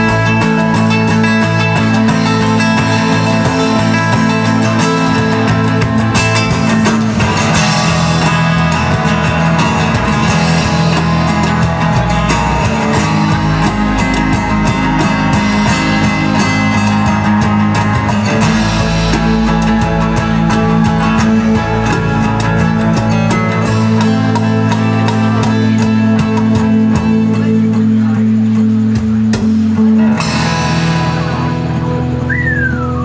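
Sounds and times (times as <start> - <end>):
guitar chords: 0.0 - 33.0
held bass notes: 0.0 - 33.0.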